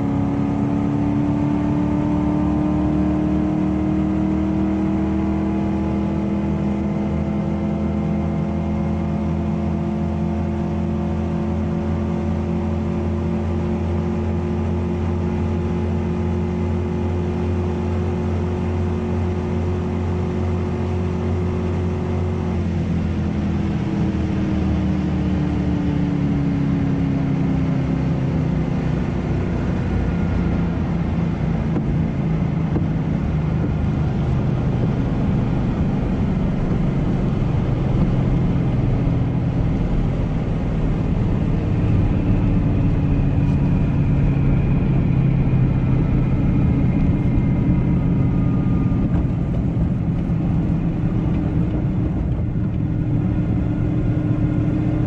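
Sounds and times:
car engine revving hard: 0:00.0 - 0:12.0
wind and road noise: 0:00.0 - 0:55.0.

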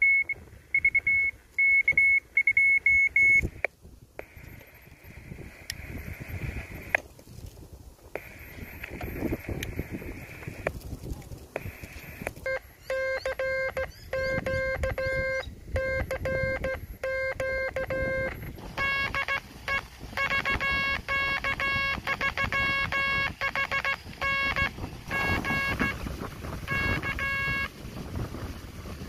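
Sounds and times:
buzzy morse code tone: 0:00.0 - 0:03.6, 0:08.2 - 0:10.6, 0:11.6 - 0:27.9
wind rumble on microphone: 0:00.0 - 0:29.0.

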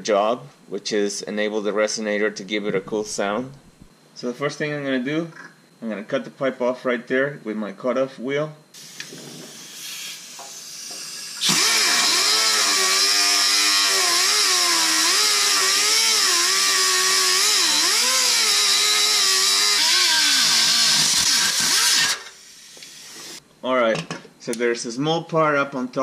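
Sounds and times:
faint air hiss: 0:00.0 - 0:11.4
pneumatic cutoff tool whine: 0:08.8 - 0:23.4.

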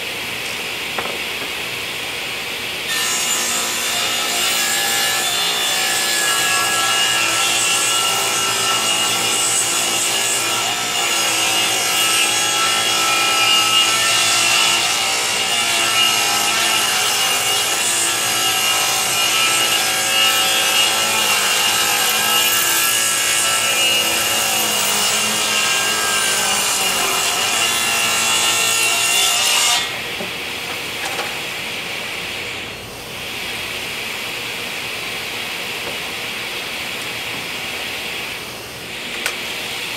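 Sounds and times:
table saw cutting wood: 0:02.9 - 0:34.0.

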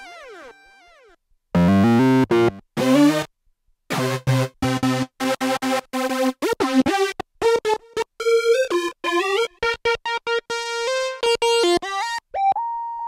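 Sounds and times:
synth keytar notes: 0:00.0 - 0:03.3.

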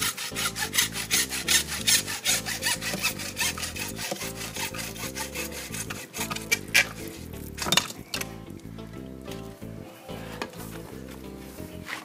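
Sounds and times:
hacksaw cutting through pipe: 0:00.0 - 0:08.4.

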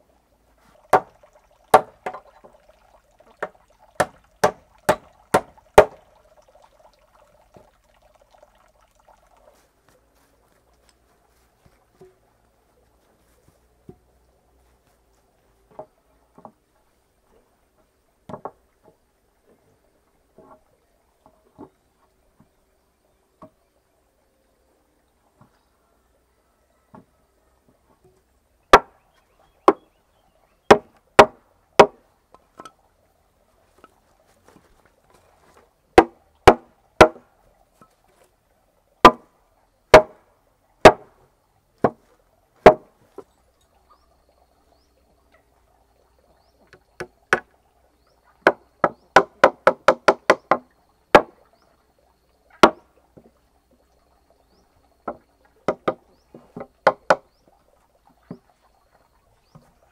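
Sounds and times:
knocks on solid wood: 0:01.7 - 0:02.2, 0:03.4 - 0:06.0, 0:30.7 - 0:32.0, 0:36.0 - 0:37.2, 0:39.9 - 0:40.2, 0:42.6 - 0:42.9, 0:48.4 - 0:50.6, 0:52.6 - 0:52.8, 0:55.1 - 0:56.0, 0:56.6 - 0:57.2.

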